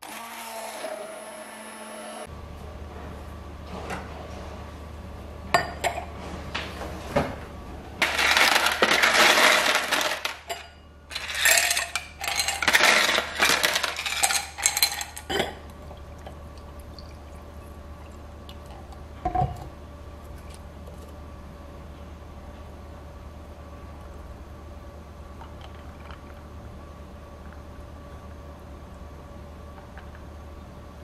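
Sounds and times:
ice cubes clinking into glass: 8.0s - 15.3s.

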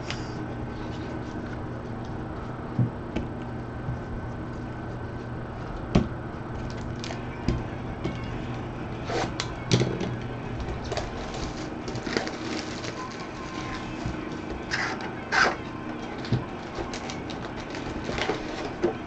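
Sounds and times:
steady electrical hum: 0.0s - 19.0s
cards and boxes knocking and rustling: 9.2s - 19.0s.

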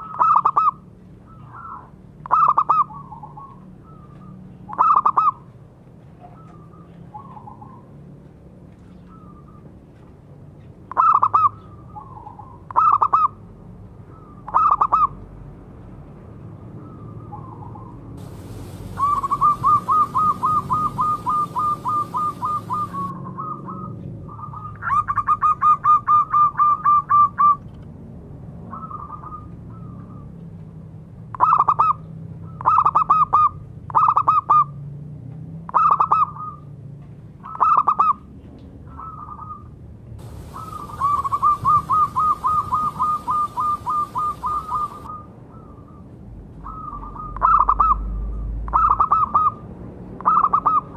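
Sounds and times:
dove cooing: 18.2s - 23.8s, 40.2s - 45.2s.

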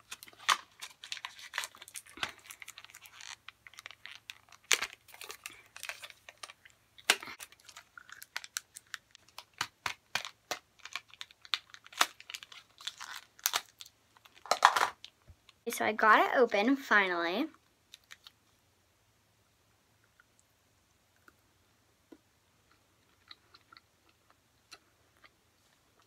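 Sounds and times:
plastic wrapper crinkling: 0.0s - 15.6s, 17.9s - 18.4s.

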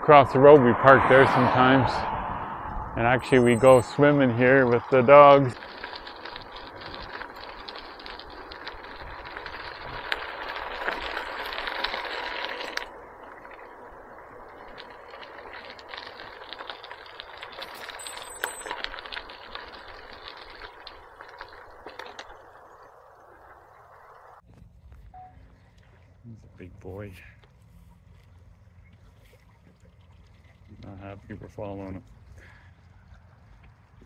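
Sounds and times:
bicycle tyre and wind rush: 0.0s - 24.5s, 31.2s - 34.0s
bike rattles and clicks: 3.2s - 23.2s, 30.0s - 34.0s.

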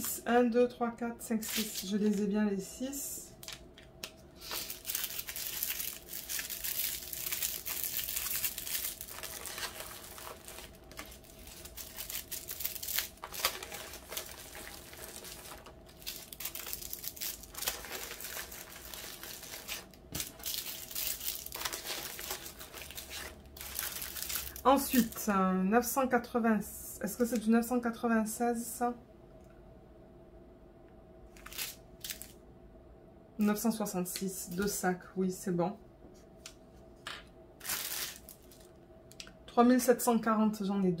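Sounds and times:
plastic bags crinkling: 1.4s - 2.3s, 4.4s - 25.3s, 31.4s - 32.4s, 37.6s - 38.8s.

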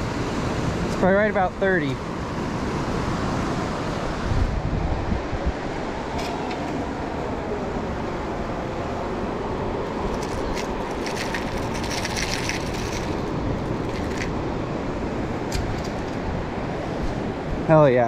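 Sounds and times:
wind on microphone: 2.6s - 7.1s.

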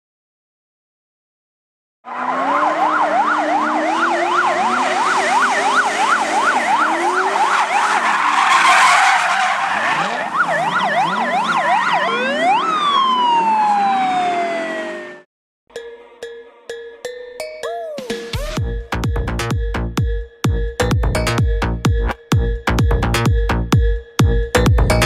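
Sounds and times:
tyres skidding: 2.1s - 15.1s
car engines revving: 2.1s - 15.2s
siren wailing: 2.1s - 15.3s.

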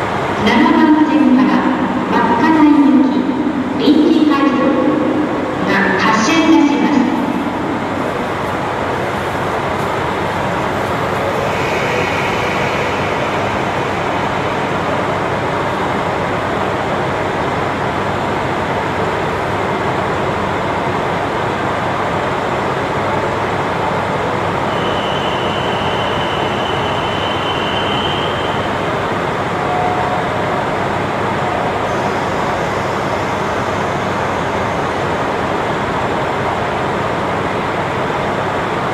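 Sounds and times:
thin high steady tone: 10.7s - 15.9s.

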